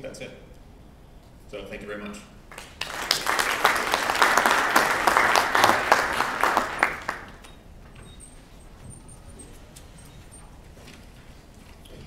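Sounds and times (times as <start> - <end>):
audience applauding: 2.5 - 7.5.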